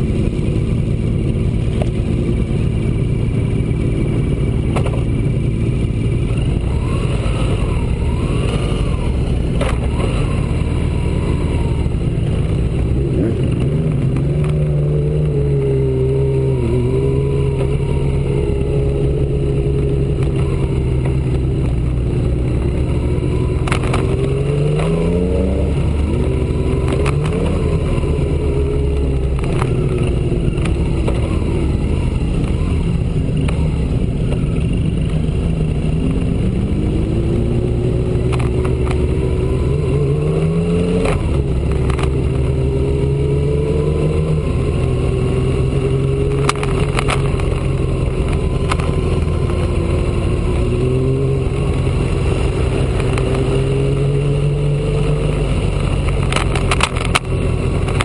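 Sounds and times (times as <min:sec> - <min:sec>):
motorcycle engine running: 0:00.0 - 0:58.0
sharp clicks: 0:46.2 - 0:49.7, 0:55.7 - 0:58.0.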